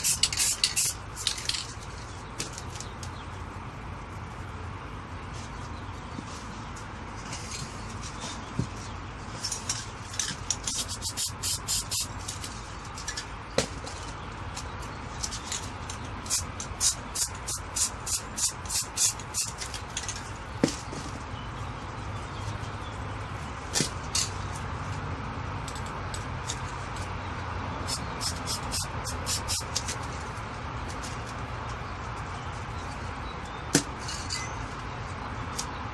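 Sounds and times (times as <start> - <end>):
spray can hissing bursts: 0.0 - 1.4, 10.7 - 12.2, 16.3 - 19.6, 27.8 - 29.8.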